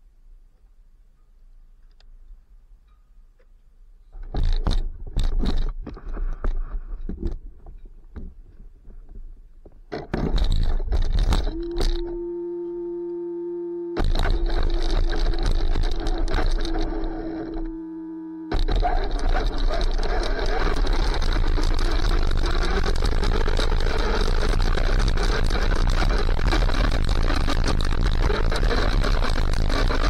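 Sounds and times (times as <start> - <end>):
wind noise on microphone: 4.2 - 12.9, 18.5 - 30.0
steady electronic motor tone: 11.4 - 30.0
rustling: 18.5 - 30.0.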